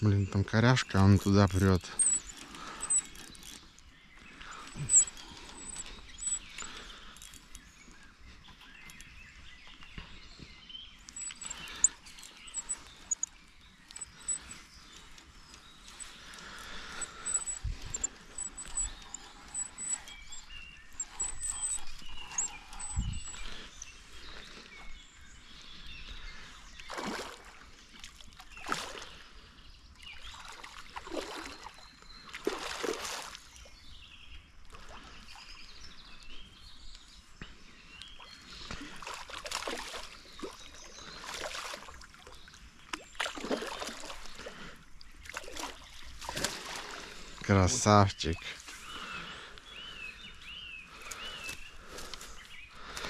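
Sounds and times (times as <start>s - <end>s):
bird chirps: 0.0s - 27.2s, 47.6s - 53.0s.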